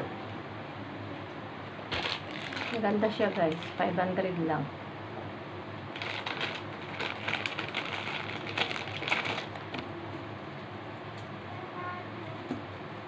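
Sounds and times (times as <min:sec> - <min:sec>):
plastic wrapper crinkling: 0:01.9 - 0:03.9, 0:05.9 - 0:09.8.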